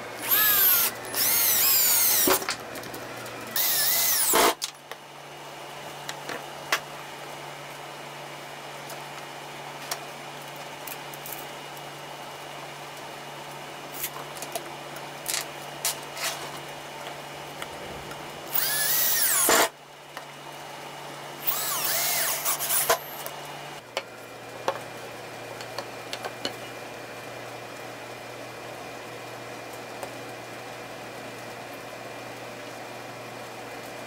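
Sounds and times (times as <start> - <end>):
cordless drill whining: 0.2 - 2.4, 3.5 - 4.6, 18.5 - 19.7, 21.4 - 23.3.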